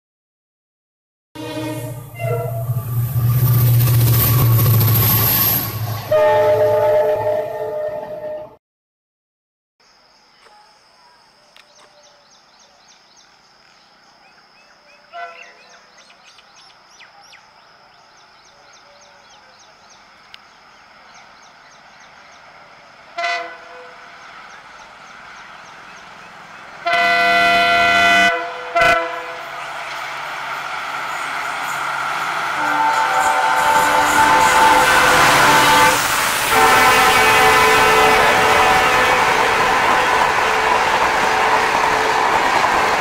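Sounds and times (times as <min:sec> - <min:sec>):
locomotive air horn: 0:01.4 - 0:08.6, 0:23.1 - 0:24.0, 0:26.8 - 0:29.6, 0:32.5 - 0:42.4
train rumble: 0:01.4 - 0:08.6, 0:17.8 - 0:43.0.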